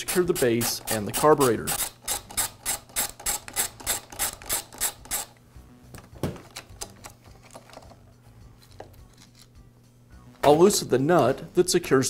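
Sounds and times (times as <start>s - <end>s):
ratchet clicking: 1.7s - 5.3s
handling of parts: 5.9s - 9.6s.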